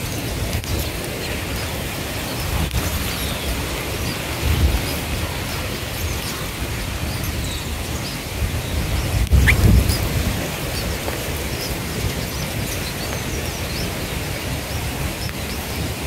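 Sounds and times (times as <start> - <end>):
steady hiss: 0.0 - 16.0
wind rumbling on microphone: 0.0 - 16.0
high bird chirps: 9.0 - 10.1.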